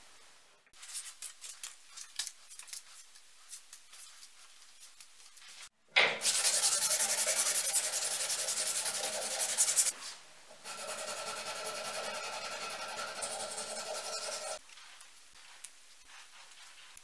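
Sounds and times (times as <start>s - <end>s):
sandpaper rubbing on handle: 2.8s - 10.0s, 10.6s - 17.0s.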